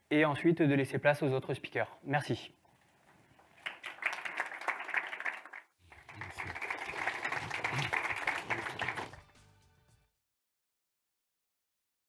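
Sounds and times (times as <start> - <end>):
audience applauding: 3.6 - 9.4.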